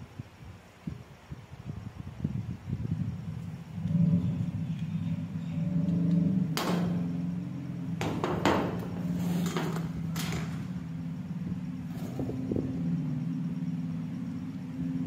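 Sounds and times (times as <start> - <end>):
steady low hum: 0.0 - 15.0
metal clipper knocking on concrete: 8.0 - 10.4.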